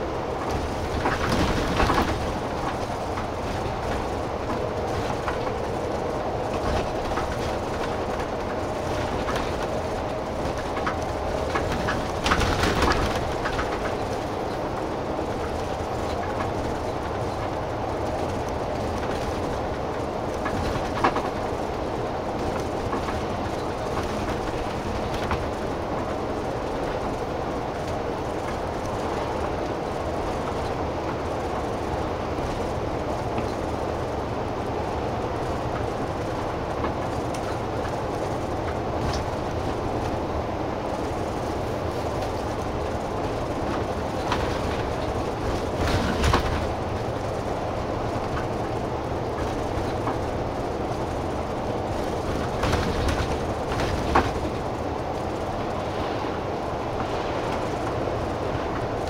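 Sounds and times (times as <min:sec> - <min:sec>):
bus engine and road drone: 0:00.0 - 0:59.0.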